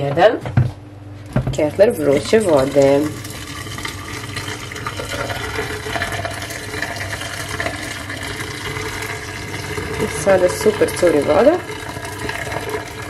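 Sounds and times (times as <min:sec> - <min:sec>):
water pouring into metal sink: 0:01.6 - 0:13.0.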